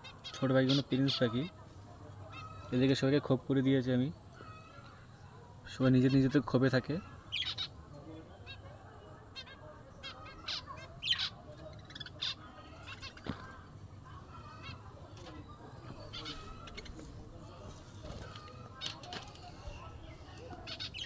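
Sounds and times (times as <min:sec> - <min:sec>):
budgerigars chirping: 0:00.0 - 0:01.6, 0:02.2 - 0:03.2, 0:05.8 - 0:07.8, 0:09.4 - 0:13.6, 0:14.3 - 0:17.1, 0:20.4 - 0:21.0.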